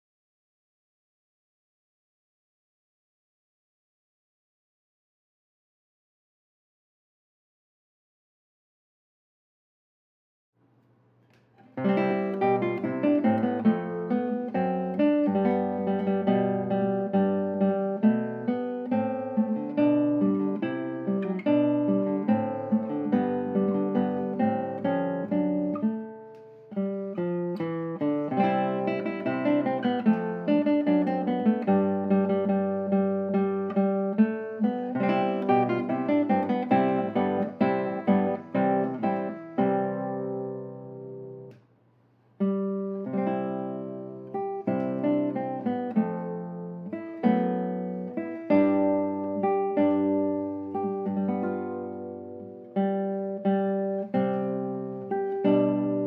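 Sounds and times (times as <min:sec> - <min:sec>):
classical guitar playing: 0:11.6 - 0:41.6, 0:42.4 - 0:56.0.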